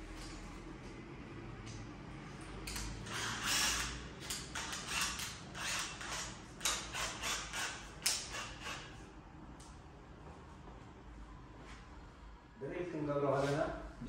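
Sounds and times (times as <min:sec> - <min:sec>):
drill chuck ratcheting clicks: 0:02.7 - 0:08.8.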